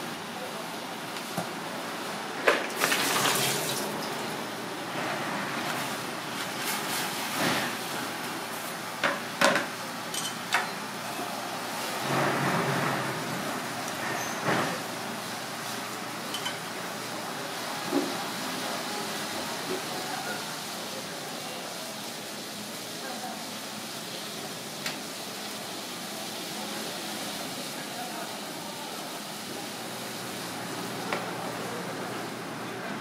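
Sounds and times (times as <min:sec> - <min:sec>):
water heating on gas burner: 0:02.4 - 0:32.8
water boiling: 0:02.6 - 0:04.7.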